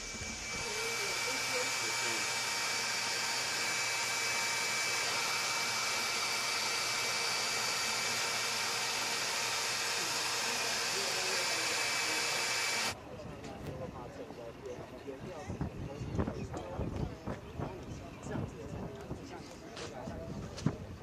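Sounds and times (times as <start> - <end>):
printer fans whirring: 0.0 - 13.0.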